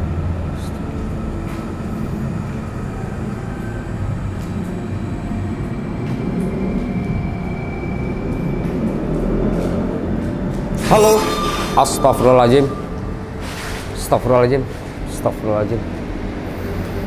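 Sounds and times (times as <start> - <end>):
steady low rumbling: 0.0 - 17.0
faint thin high tone: 10.8 - 13.0.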